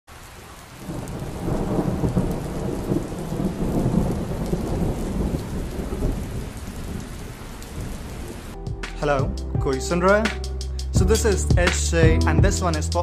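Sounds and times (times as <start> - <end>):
rain falling: 0.1 - 9.3
rolling thunder rumble: 0.8 - 8.6.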